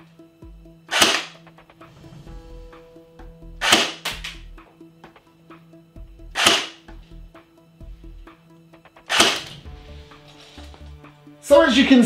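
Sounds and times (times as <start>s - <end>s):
airsoft gun shots: 0.9s - 1.4s, 3.6s - 4.4s, 6.4s - 6.8s, 9.1s - 9.6s.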